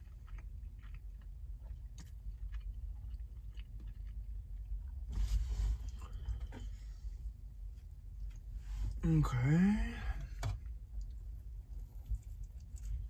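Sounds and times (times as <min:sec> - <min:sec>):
person chewing food: 0:00.0 - 0:05.1, 0:05.7 - 0:08.6, 0:10.6 - 0:13.0.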